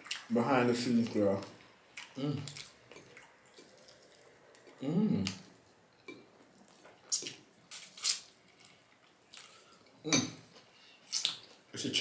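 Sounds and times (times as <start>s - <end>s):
wet chewing and lip-smacking: 2.0s - 9.7s.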